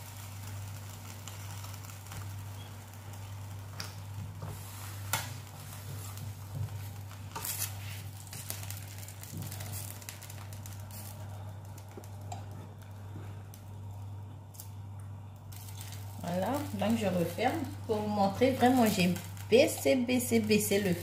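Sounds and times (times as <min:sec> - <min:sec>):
low electric hum: 0:00.0 - 0:21.0.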